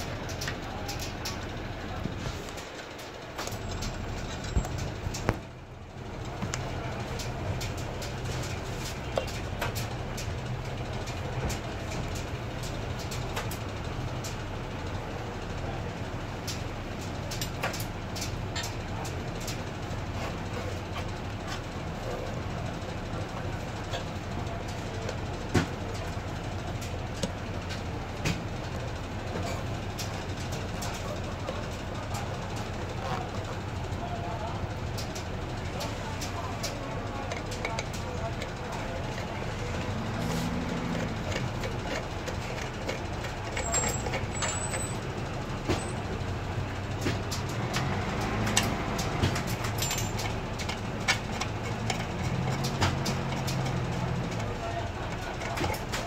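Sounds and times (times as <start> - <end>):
metal parts clicking and tapping: 36.2 - 46.0, 47.0 - 56.0.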